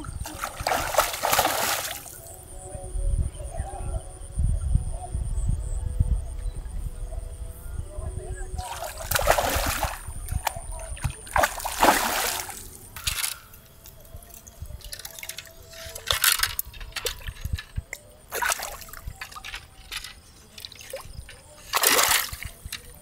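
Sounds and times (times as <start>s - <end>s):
fish splashing in water: 0.0s - 2.2s, 8.6s - 12.8s, 18.3s - 19.8s, 20.6s - 22.8s.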